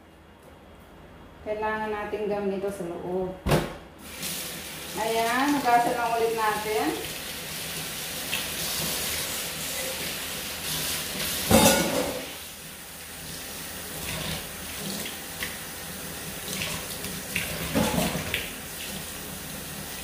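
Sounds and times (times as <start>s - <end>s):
tap water running into sink: 6.5s - 11.6s, 13.2s - 20.0s.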